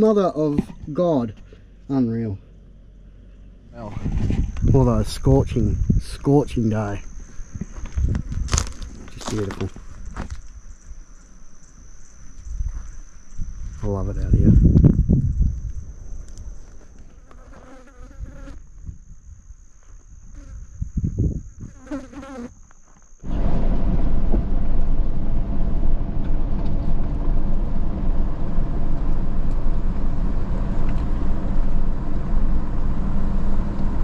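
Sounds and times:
vehicle rumbling: 0.0s - 17.4s, 23.2s - 34.0s
flies buzzing: 17.0s - 18.8s, 20.2s - 23.0s
high-pitched whine: 23.2s - 34.0s.

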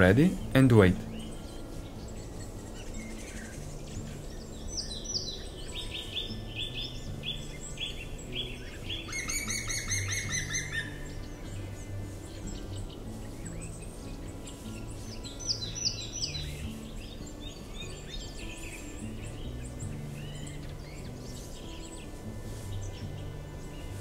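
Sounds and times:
fast dense bird trill: 0.0s - 22.1s
soft background music: 0.0s - 24.0s
songbird high notes: 0.0s - 24.0s.

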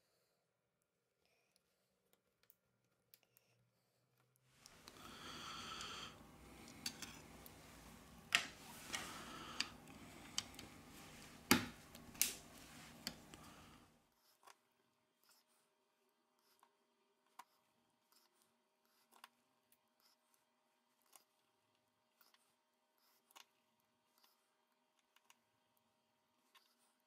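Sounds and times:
faint steady hiss: 4.6s - 14.1s.

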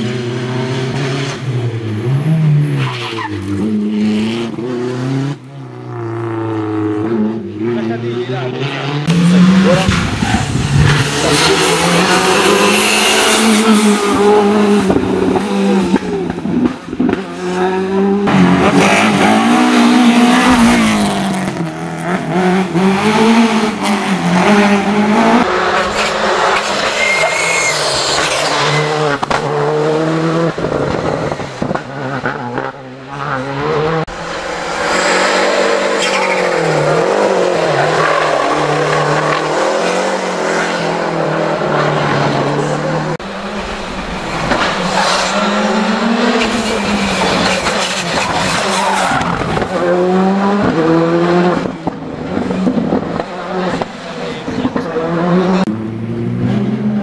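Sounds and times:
rally car engines revving: 0.0s - 57.0s
tyre squeal: 26.0s - 29.0s, 35.9s - 36.6s.

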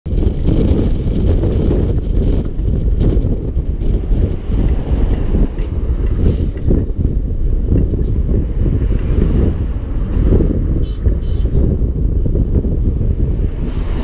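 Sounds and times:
diesel truck engine rumble: 0.1s - 14.0s
road noise: 0.1s - 14.0s.

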